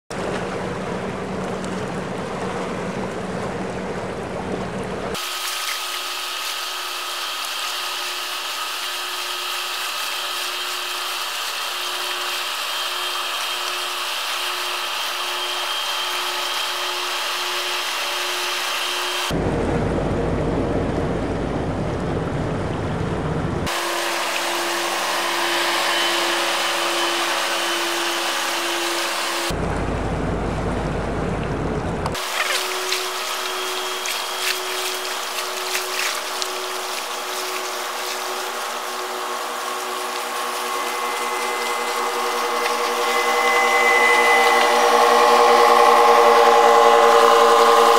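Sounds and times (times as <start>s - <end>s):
rushing water from boat wash: 0.1s - 47.9s
barge diesel engines droning: 12.8s - 47.9s.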